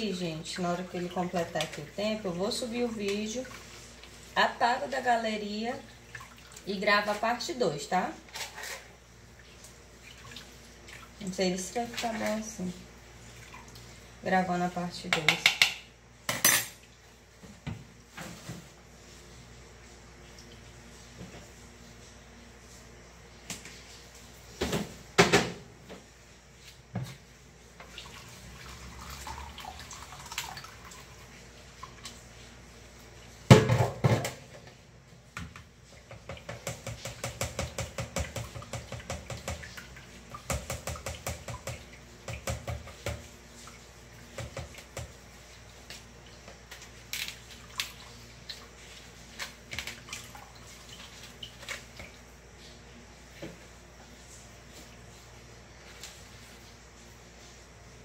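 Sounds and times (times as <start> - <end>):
liquid dripping and pouring: 27.8 - 32.2.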